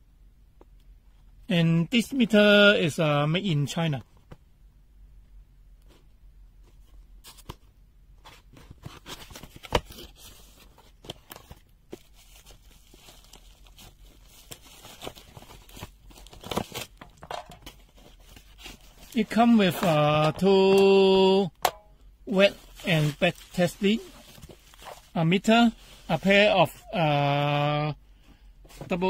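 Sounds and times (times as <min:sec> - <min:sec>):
packaging rustling and crinkling: 0:06.7 - 0:21.1, 0:22.3 - 0:26.8.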